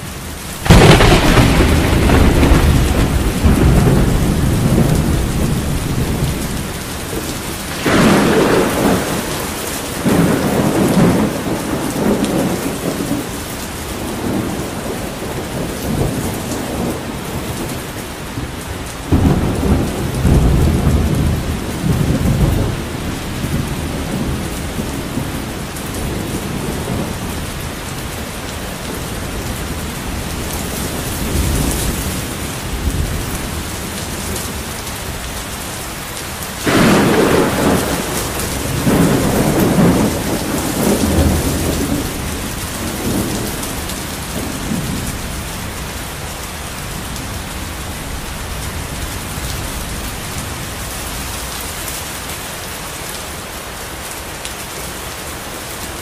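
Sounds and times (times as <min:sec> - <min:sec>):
steady rain: 0:00.0 - 0:56.0
thunder clap: 0:00.6 - 0:13.3, 0:19.1 - 0:27.3, 0:36.6 - 0:45.7
rolling thunder: 0:00.6 - 0:35.4, 0:36.5 - 0:51.4.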